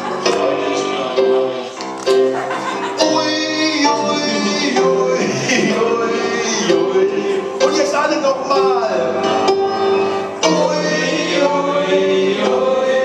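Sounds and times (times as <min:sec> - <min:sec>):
piano playing: 0:00.0 - 0:13.0
man singing into a microphone: 0:03.0 - 0:09.2.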